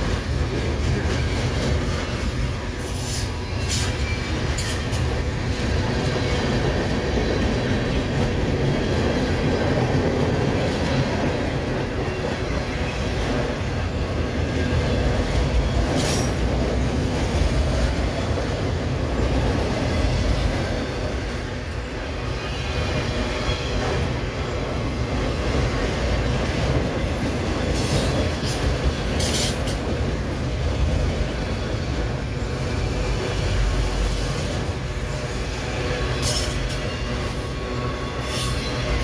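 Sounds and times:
train wheels rumbling on rail: 0.0 - 39.0.

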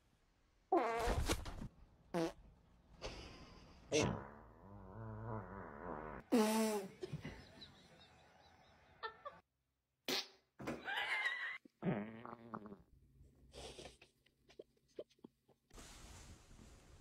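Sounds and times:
person farting: 0.7 - 1.4, 2.1 - 2.4, 3.9 - 6.9, 11.8 - 12.9.

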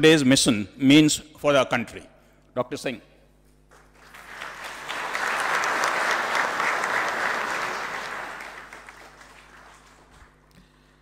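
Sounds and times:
audience applauding: 3.7 - 10.5.

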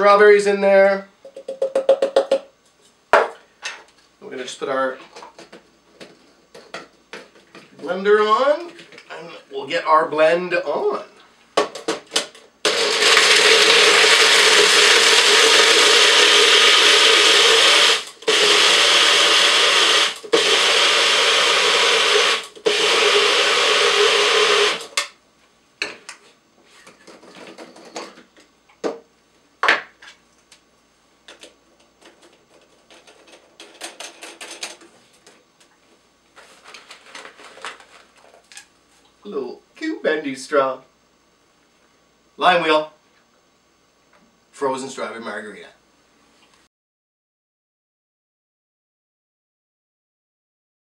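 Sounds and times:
cup knocking and clinking: 1.2 - 2.5
blender crushing ice: 12.2 - 25.1.

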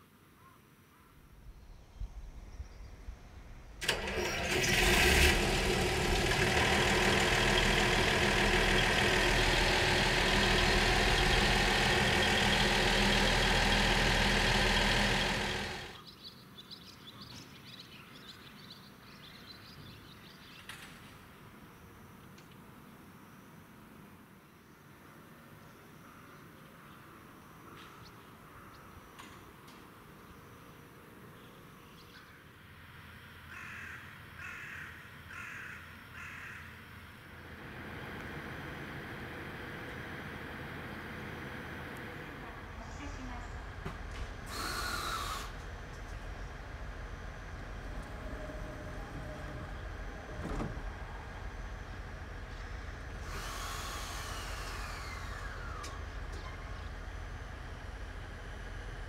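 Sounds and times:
electric train hissing whine: 3.8 - 16.0, 37.5 - 59.0
crow cawing: 33.5 - 36.8
low background rumble: 37.4 - 59.0.

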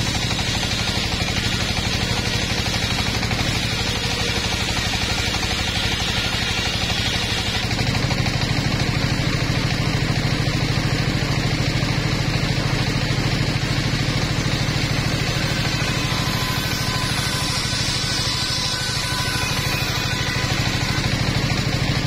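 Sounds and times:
circular saw engine running: 0.0 - 22.0
saw blade cutting wood: 0.0 - 22.0.

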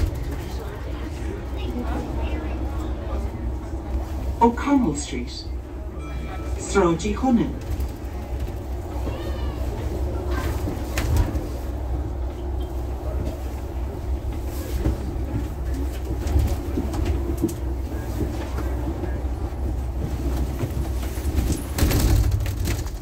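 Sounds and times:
bus engine and road rumble: 0.0 - 23.0
bodywork knocks and rattles: 19.8 - 23.0.

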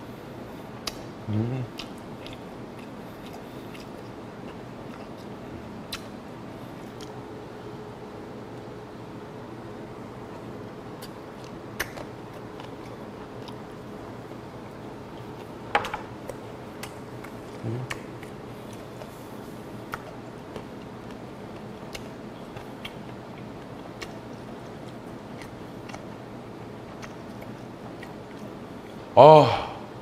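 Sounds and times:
steady low hum: 0.0 - 30.0
wet mouth clicks: 1.7 - 4.2, 5.9 - 6.1, 11.0 - 13.6
chewing raw fish: 1.7 - 6.2, 16.2 - 29.1.

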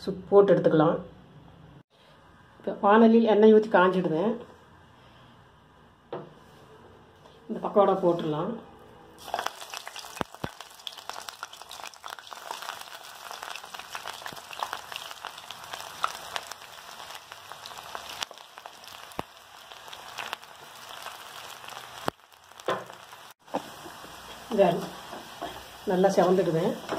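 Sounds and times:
oil popping: 9.2 - 23.7
batter deep-frying in oil: 9.2 - 26.9.

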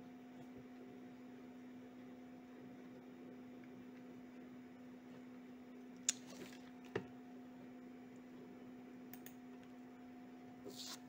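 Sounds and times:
low electrical hum: 0.0 - 11.0
computer mouse clicks: 9.1 - 9.4.

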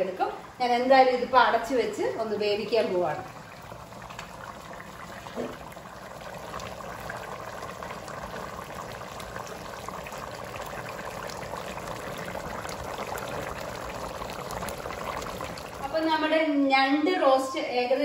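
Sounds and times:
gravy bubbling in a pan: 0.0 - 16.5.

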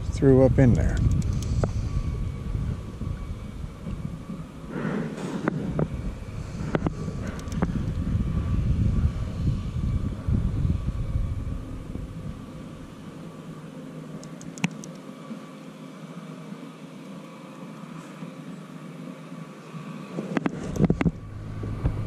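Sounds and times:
wind buffeting microphone: 0.0 - 13.2, 20.4 - 22.0
sharp clicks: 0.7 - 1.6, 7.3 - 7.7, 14.2 - 15.0.

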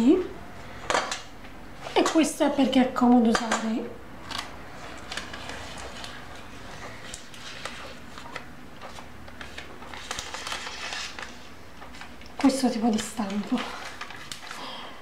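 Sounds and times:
baking paper rustling and crinkling: 4.3 - 14.9.

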